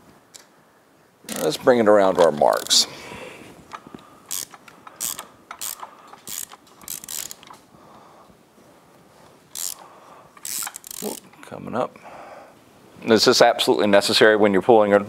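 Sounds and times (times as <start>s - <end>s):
socket ratchet clicking: 1.3s - 1.5s, 2.2s - 2.8s, 3.7s - 7.6s, 9.5s - 9.8s, 10.4s - 11.4s.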